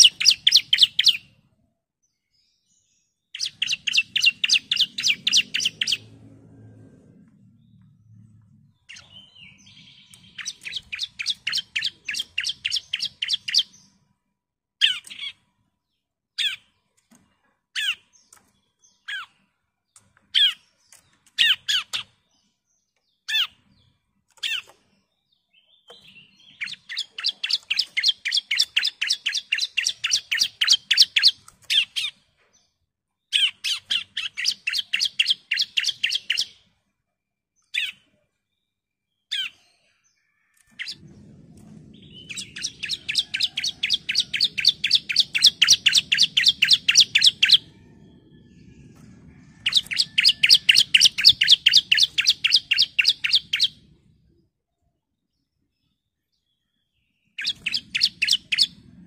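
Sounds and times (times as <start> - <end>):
bird singing chipping notes: 0.0 - 1.5, 2.2 - 6.2, 7.4 - 14.1, 17.8 - 32.7, 33.3 - 36.7, 40.7 - 54.4, 56.0 - 59.0.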